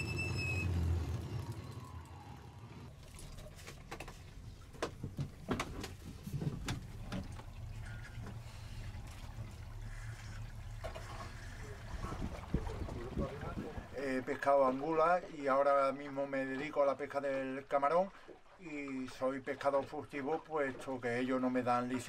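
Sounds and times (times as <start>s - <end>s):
low steady hum: 0.1s - 15.3s.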